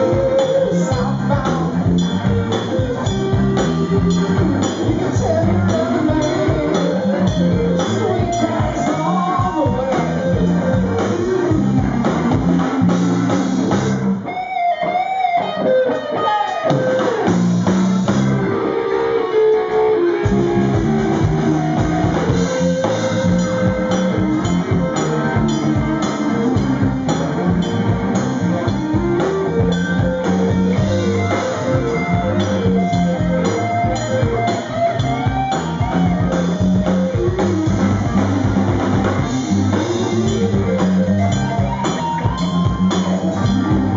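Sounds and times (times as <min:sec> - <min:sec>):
bass guitar: 0:00.0 - 0:43.9
drum kit: 0:00.0 - 0:43.9
electric guitar lead: 0:00.0 - 0:43.9.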